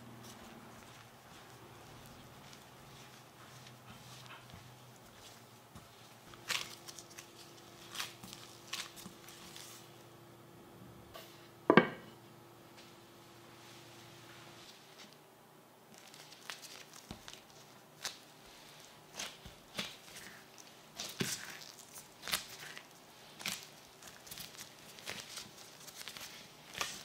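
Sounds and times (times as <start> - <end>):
hands kneading dough: 0.0 - 10.1, 15.9 - 27.0.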